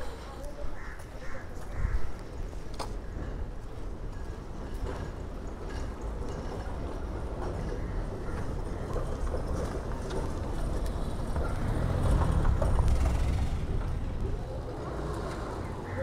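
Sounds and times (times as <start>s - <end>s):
vehicle passing with low rumble: 10.4s - 16.0s.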